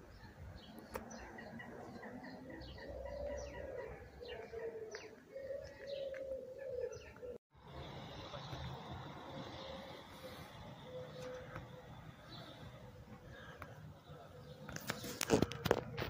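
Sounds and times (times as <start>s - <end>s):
small birds chirping: 0.0s - 15.9s
pigeon cooing: 1.2s - 7.4s, 9.7s - 12.6s.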